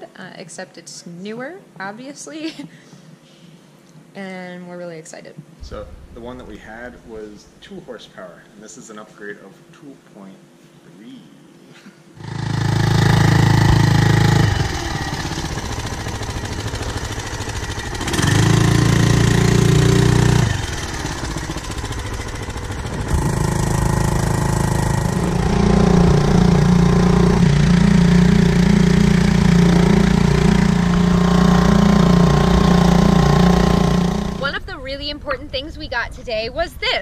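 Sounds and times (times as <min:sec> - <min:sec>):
outboard motor running: 0:12.2 - 0:34.7.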